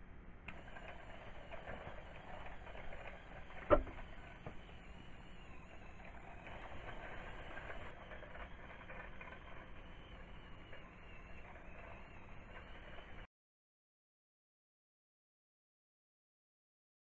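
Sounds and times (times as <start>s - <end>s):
small gear motors whirring: 0.5s - 13.3s.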